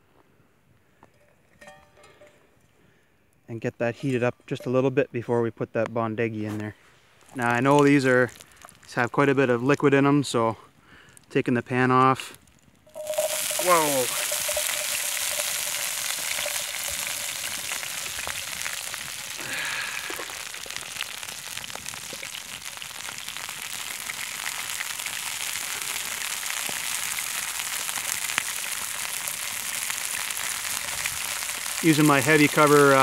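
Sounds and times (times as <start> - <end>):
oil sizzling in a pan: 12.9 - 33.0.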